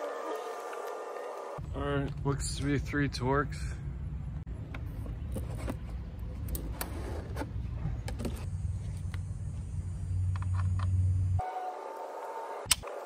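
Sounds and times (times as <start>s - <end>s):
steady low rumble: 1.6s - 5.4s.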